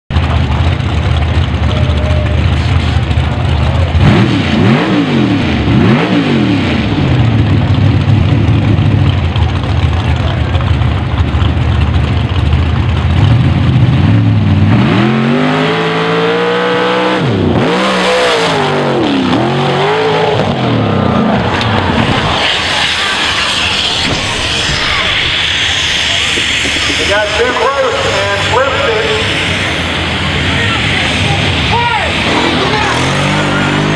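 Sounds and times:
dragster engine revving: 0.1s - 33.9s.

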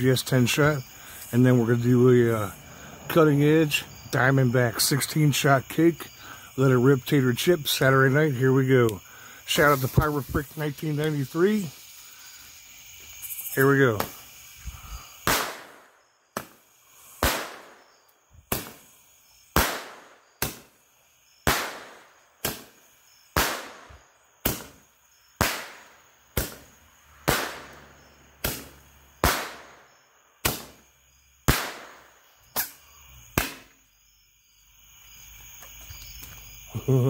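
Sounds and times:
firework candle pops and bangs: 13.2s - 33.8s.

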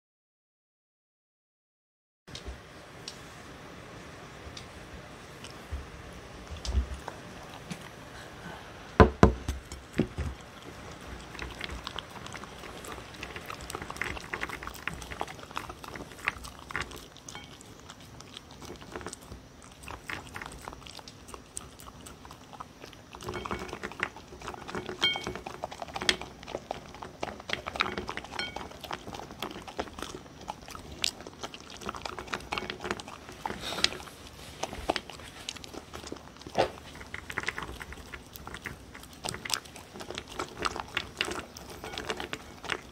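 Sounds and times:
dog chewing and licking: 5.2s - 8.1s, 9.6s - 42.9s
loud knocks: 9.0s - 10.2s.

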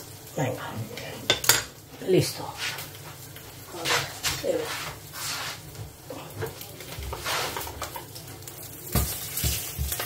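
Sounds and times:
food sizzling in a pan: 0.0s - 10.0s
kitchen clatter: 1.3s - 1.8s, 6.4s - 8.2s, 8.8s - 10.0s.

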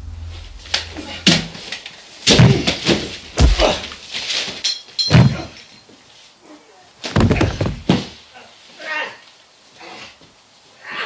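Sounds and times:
bodies slamming against walls: 2.3s - 4.0s, 5.1s - 5.6s, 7.1s - 8.2s.

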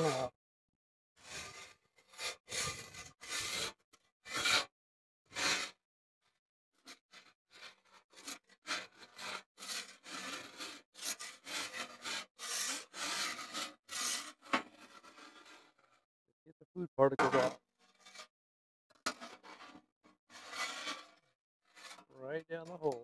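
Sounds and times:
metal scraper on steel griddle: 1.2s - 4.7s, 5.3s - 5.8s, 7.2s - 15.9s, 17.2s - 18.3s, 19.0s - 22.1s.

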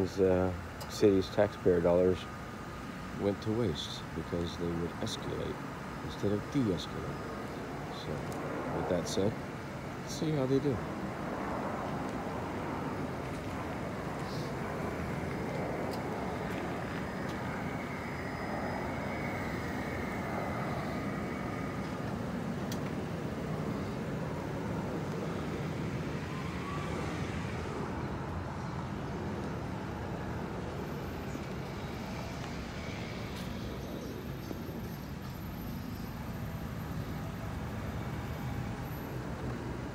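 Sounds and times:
road traffic rumble: 0.0s - 39.9s.

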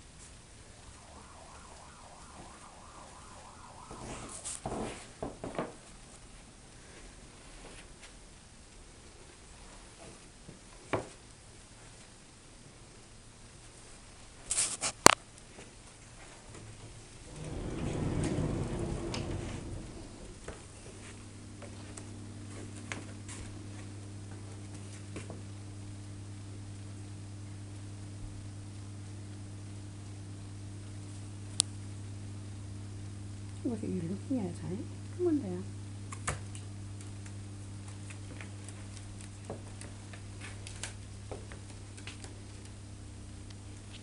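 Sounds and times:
steady low hum: 0.0s - 5.6s, 15.3s - 44.0s.

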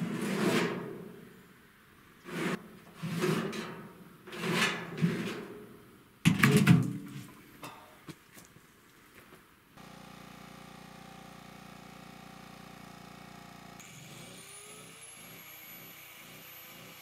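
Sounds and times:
metal drum scraping on metal sheet: 0.0s - 1.2s, 2.2s - 5.8s.

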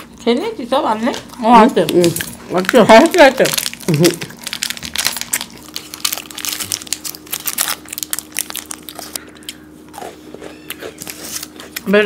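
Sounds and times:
crunching and chewing biscuits: 0.0s - 12.0s
plastic wrapper crinkling: 1.5s - 9.5s.

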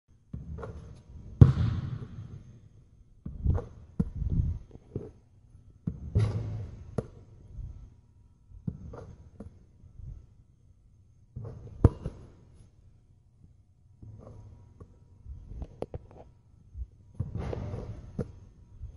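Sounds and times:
basketball bouncing on hard court: 0.3s - 2.4s, 11.4s - 12.3s.

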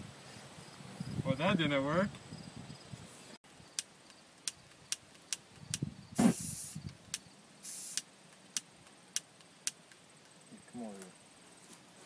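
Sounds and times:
aerosol spray can hissing: 6.2s - 6.9s, 7.6s - 8.1s.

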